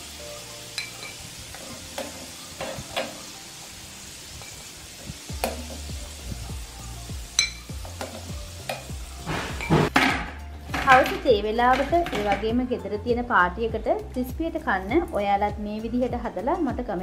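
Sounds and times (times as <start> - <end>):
food deep-frying in hot oil: 0.0 - 10.0.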